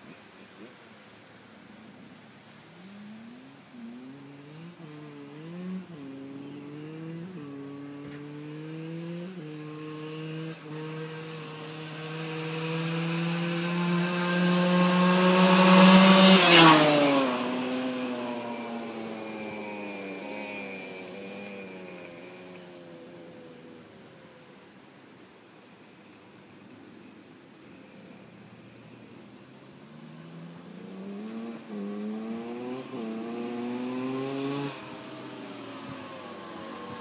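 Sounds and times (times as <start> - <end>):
dirt bike engine accelerating: 2.8 - 23.8, 29.8 - 37.0.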